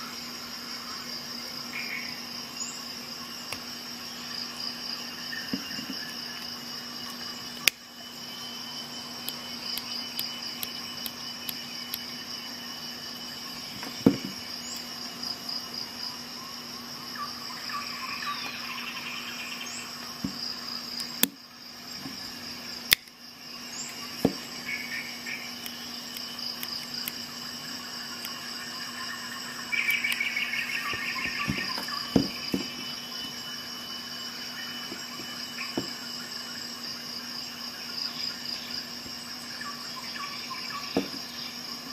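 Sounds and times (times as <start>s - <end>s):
crickets chirring: 0.0s - 41.9s
sharp metallic clicks of tools: 22.9s - 23.2s.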